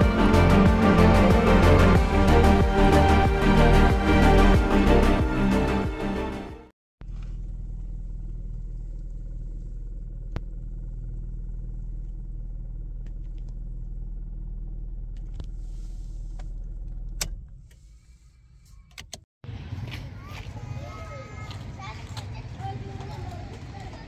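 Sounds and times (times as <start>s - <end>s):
car engine idling: 7.0s - 18.6s.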